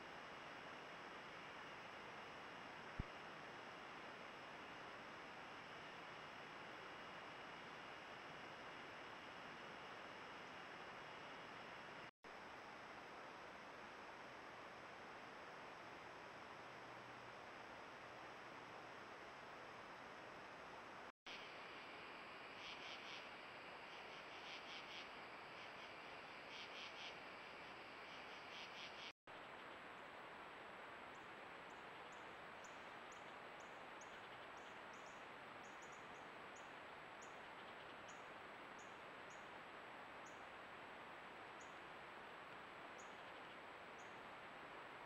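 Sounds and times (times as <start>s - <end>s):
microphone hiss: 0.0s - 45.0s
insects chirping in pulses: 21.3s - 29.2s.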